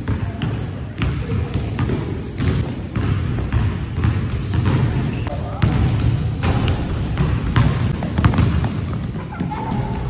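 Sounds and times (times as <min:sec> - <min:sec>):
basketballs bouncing on hardwood: 0:00.0 - 0:10.0.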